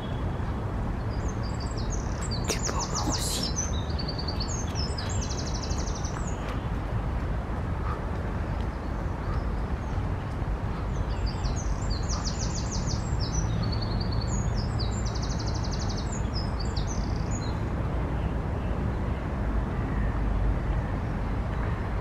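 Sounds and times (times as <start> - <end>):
robin singing: 1.0 - 6.8.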